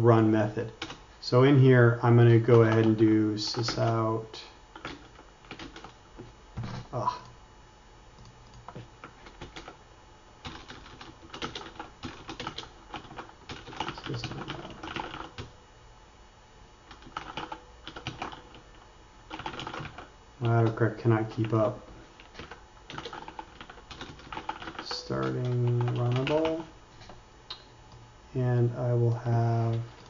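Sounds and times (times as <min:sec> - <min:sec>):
computer keyboard typing: 0:00.8 - 0:01.0, 0:02.4 - 0:04.1, 0:04.8 - 0:06.0, 0:08.2 - 0:09.8, 0:10.4 - 0:15.5, 0:16.9 - 0:26.7.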